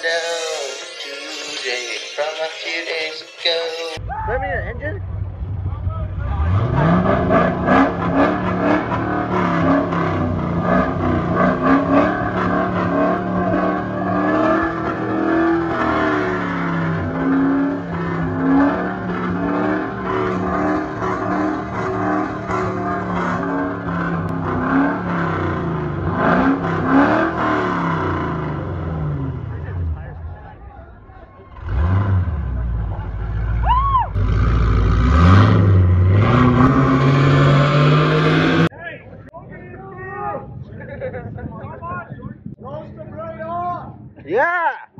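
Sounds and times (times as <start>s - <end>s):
car engine revving: 5.0s - 30.6s, 31.5s - 38.7s
pickup truck engine revving: 5.0s - 30.6s, 31.5s - 38.7s.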